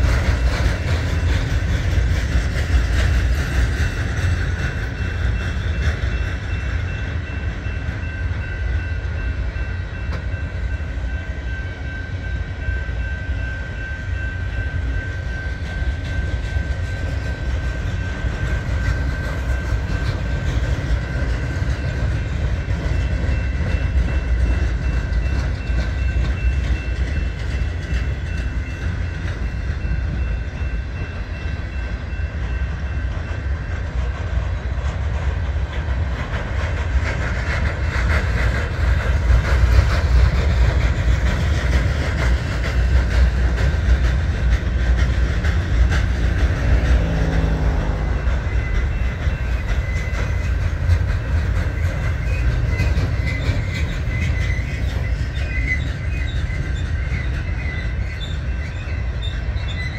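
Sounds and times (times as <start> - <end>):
clickety-clack over rail joints: 0.0 - 59.9
train wheels rumbling on rails: 0.0 - 59.9
high wheel squeals: 45.6 - 59.9.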